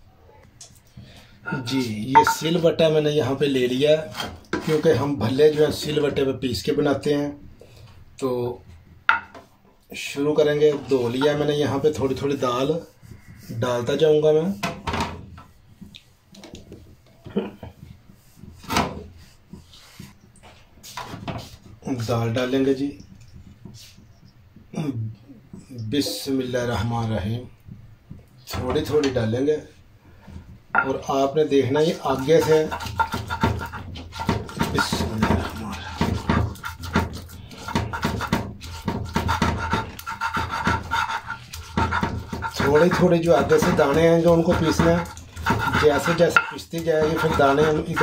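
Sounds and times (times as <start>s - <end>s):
rubbing and scraping on stone: 10.7s - 13.7s, 31.7s - 48.0s.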